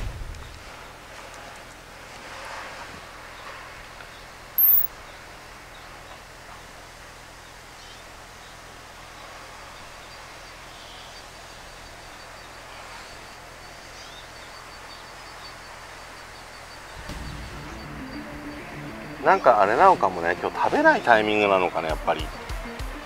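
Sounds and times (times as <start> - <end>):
background hiss: 4.6 - 4.9
faint bird chirps: 4.6 - 4.9.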